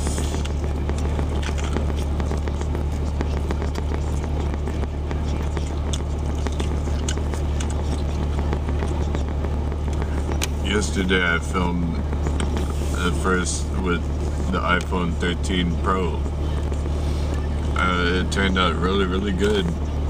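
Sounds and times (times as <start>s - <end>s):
crunchy chewing of fried chicken: 0.0s - 10.2s
steady low hum: 0.0s - 20.0s.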